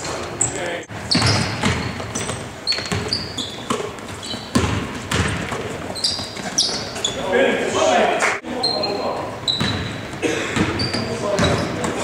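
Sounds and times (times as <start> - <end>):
sneakers squeaking: 0.0 - 7.8, 8.4 - 12.0
basketball bouncing on wooden floor: 1.1 - 7.0, 9.6 - 10.0, 10.6 - 12.0.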